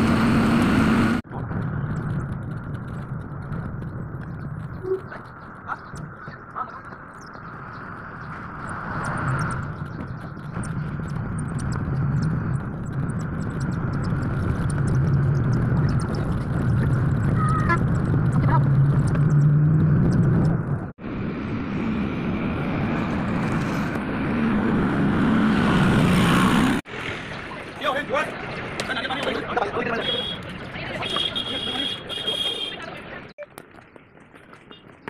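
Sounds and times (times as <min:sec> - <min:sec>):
vehicle engine drone: 0:00.0 - 0:33.7
tyre noise on highway: 0:00.0 - 0:35.0.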